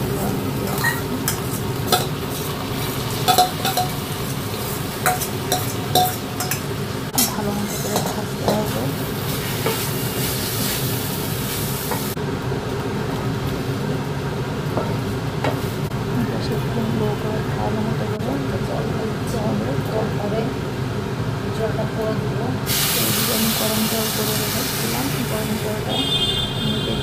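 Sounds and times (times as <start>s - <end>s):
rice sizzling in hot oil: 0.0s - 12.2s, 22.7s - 25.9s.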